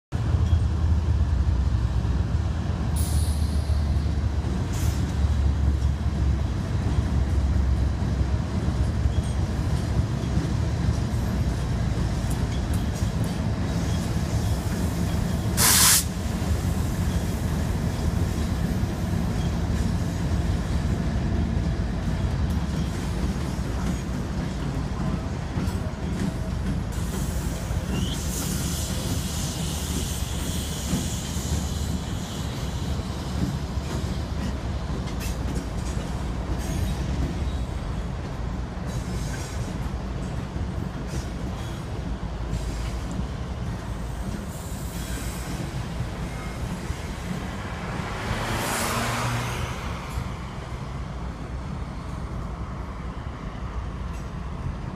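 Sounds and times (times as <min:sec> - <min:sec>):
freight train rumble: 0:00.1 - 0:54.9
brief squeal: 0:03.0 - 0:04.0, 0:27.9 - 0:29.0
air hiss: 0:15.6 - 0:16.2, 0:27.0 - 0:33.3
car road noise: 0:46.5 - 0:52.1.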